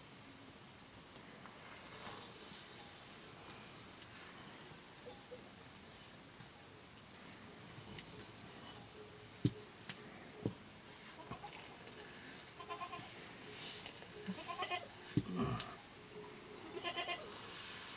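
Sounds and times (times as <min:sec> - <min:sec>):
goat bleating: 0:11.2 - 0:11.8, 0:12.6 - 0:13.1, 0:14.2 - 0:15.7, 0:16.6 - 0:17.3.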